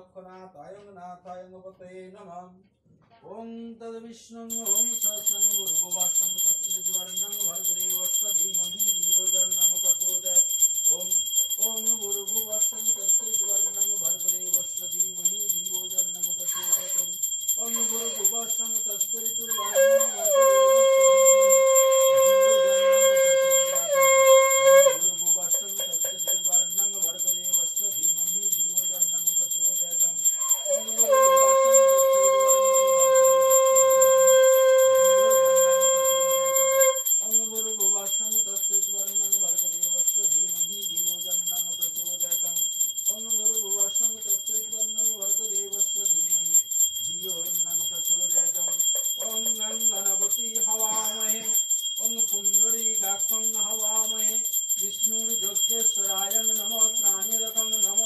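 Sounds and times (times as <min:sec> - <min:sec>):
hand bell ringing rapidly: 0:04.5 - 0:58.0
person chanting: 0:19.4 - 0:25.0, 0:30.4 - 0:37.0
conch shell blown: 0:19.6 - 0:25.1, 0:30.6 - 0:37.1.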